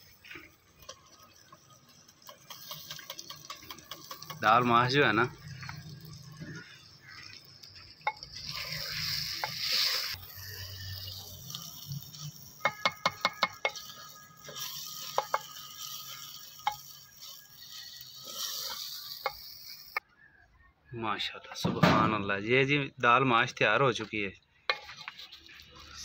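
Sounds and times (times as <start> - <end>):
frying hiss: 0.0 - 20.0, 23.4 - 26.0
wooden spoon knocking on pot: 12.7 - 13.8.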